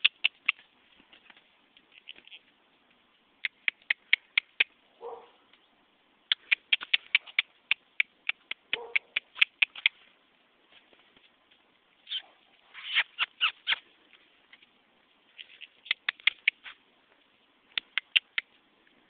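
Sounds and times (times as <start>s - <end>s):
sharp tongue clicks: 0.0s - 0.7s, 3.4s - 4.8s, 6.3s - 10.0s, 12.8s - 13.9s, 15.4s - 16.8s, 17.7s - 18.6s.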